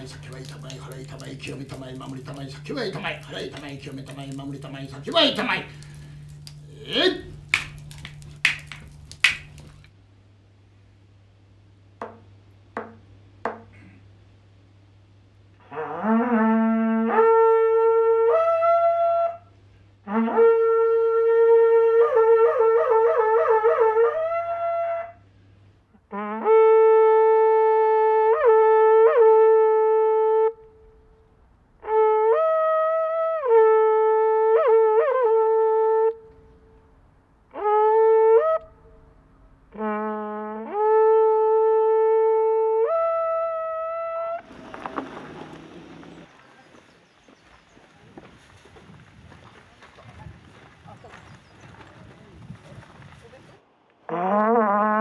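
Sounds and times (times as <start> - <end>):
conch-shell trumpet blasts: 0.0 - 9.8, 15.6 - 25.3, 26.0 - 31.1, 31.8 - 36.9, 37.5 - 46.3, 54.0 - 55.0.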